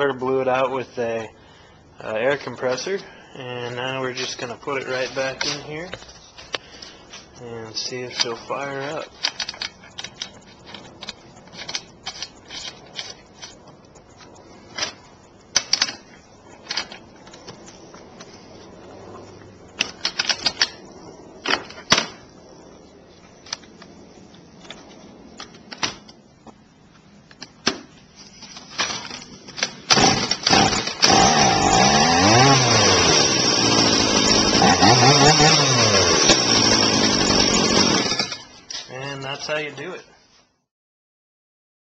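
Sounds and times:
chainsaw engine revving: 0:29.9 - 0:38.5.

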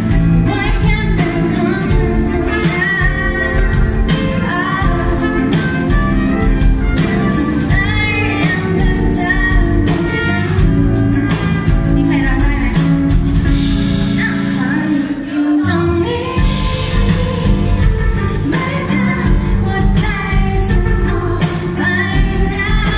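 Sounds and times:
woman singing a pop ballad: 0:00.0 - 0:13.2, 0:14.0 - 0:22.9
electric bass guitar: 0:00.0 - 0:14.9.

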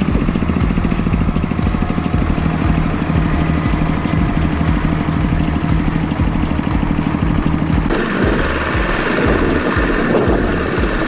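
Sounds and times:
combine harvester engine running: 0:00.0 - 0:11.0
walking tractor engine chugging: 0:00.0 - 0:11.0.

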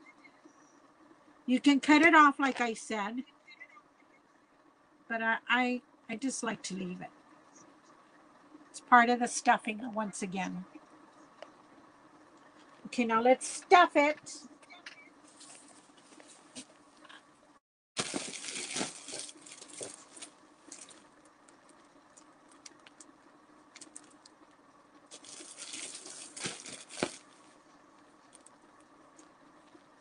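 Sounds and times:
cotton stuffing rustling: 0:18.0 - 0:21.1, 0:25.1 - 0:27.6.

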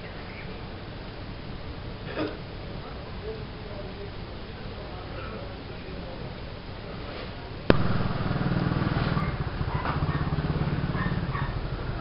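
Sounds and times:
faint hum: 0:00.0 - 0:10.3
engine running steadily: 0:07.6 - 0:12.0.

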